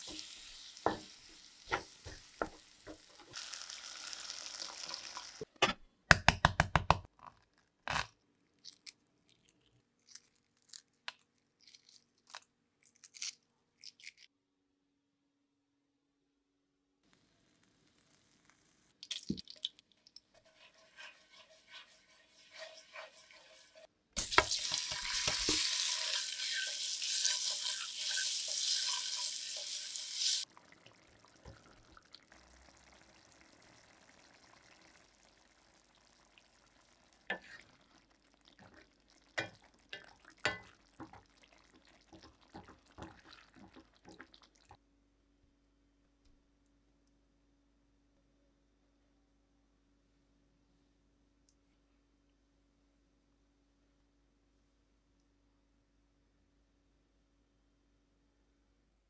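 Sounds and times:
eggs sizzling in hot oil: 0.0 - 5.6, 17.0 - 44.8
knife scraping and tapping eggs: 20.3 - 25.7.

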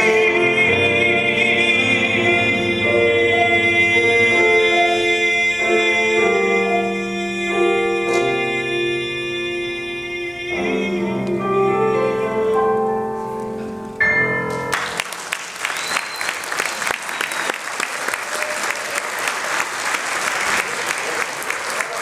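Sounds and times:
person singing: 0.0 - 13.5
grand piano chords: 0.0 - 15.6
audience applause: 14.7 - 22.0.

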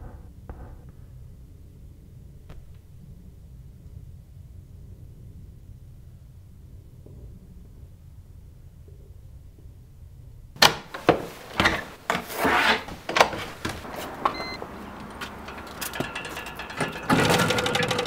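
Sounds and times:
turnstile ratcheting rattle: 14.7 - 18.0.

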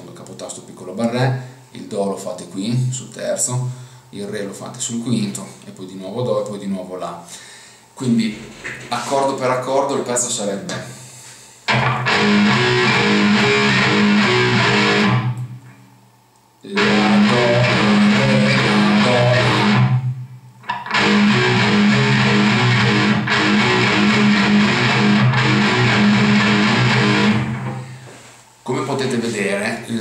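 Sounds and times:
electric guitar power-chord riff: 11.7 - 15.6, 16.7 - 28.0.

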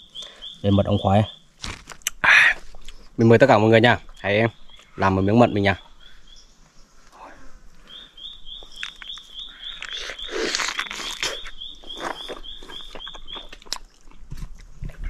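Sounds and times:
man chewing honeycomb: 8.3 - 15.0.

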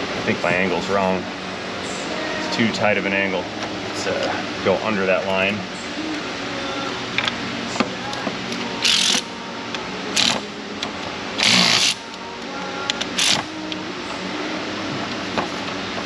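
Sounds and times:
low hum: 0.0 - 16.0
ratchet ratcheting: 8.8 - 9.2, 11.4 - 12.0, 13.2 - 13.5.

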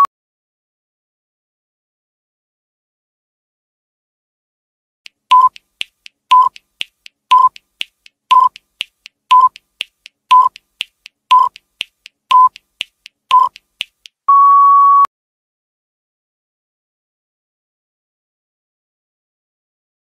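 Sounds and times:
faint ticks: 5.1 - 14.2
long steady beep: 5.3 - 5.6, 6.3 - 6.6, 7.3 - 7.6, 9.3 - 9.6, 10.3 - 10.5, 11.3 - 11.6, 13.3 - 13.5, 14.3 - 15.1
short electronic beeps: 5.3 - 5.6, 6.3 - 6.6, 7.3 - 7.6, 8.3 - 8.6, 9.3 - 9.6, 10.3 - 10.6, 11.3 - 11.6, 12.3 - 12.6, 13.3 - 13.6, 14.3 - 15.1.

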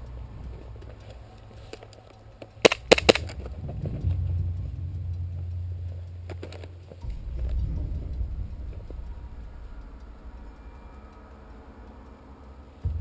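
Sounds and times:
steady low rumble: 0.0 - 13.0
airsoft pistol cracks: 2.6 - 3.5.

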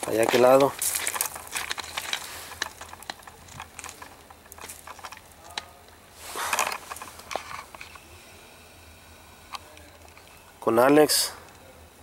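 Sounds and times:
footsteps on rocky ground: 0.0 - 8.0
short rustle: 0.0 - 8.0.

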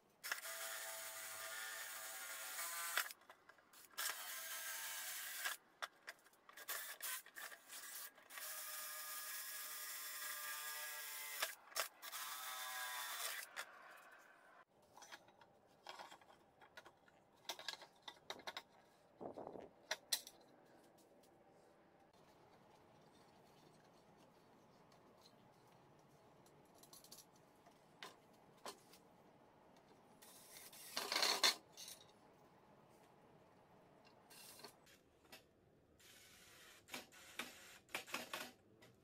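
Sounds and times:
faint handling clicks and scrapes: 14.6 - 33.2, 34.0 - 35.5.

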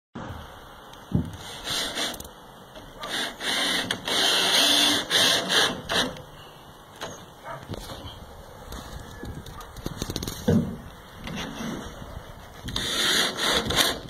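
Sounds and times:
wood scraping on wood: 1.2 - 6.2, 8.8 - 14.0.

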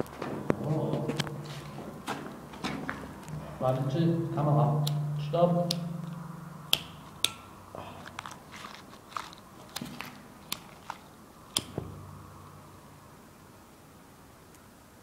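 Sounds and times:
faint handling clicks and crackles: 8.0 - 11.7.

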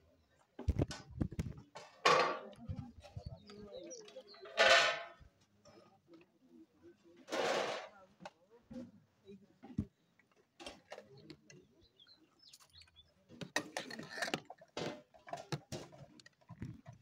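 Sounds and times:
metal ladles clinking on pots: 4.3 - 5.2, 13.4 - 16.0.

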